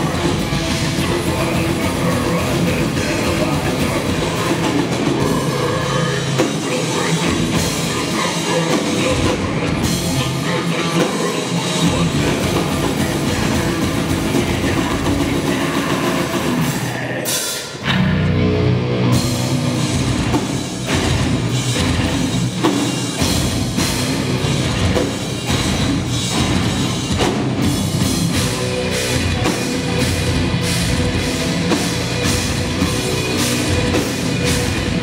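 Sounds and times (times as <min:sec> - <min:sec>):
heavy rock band playing live: 0:00.0 - 0:35.0.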